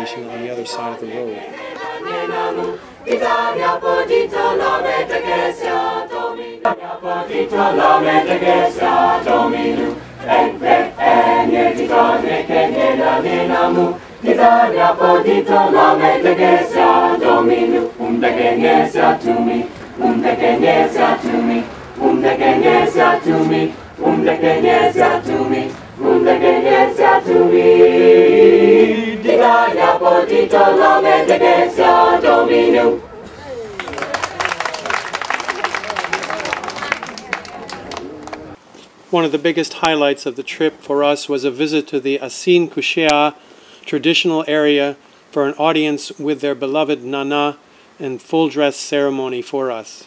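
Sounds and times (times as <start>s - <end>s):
choir singing a cappella: 0.0s - 33.3s.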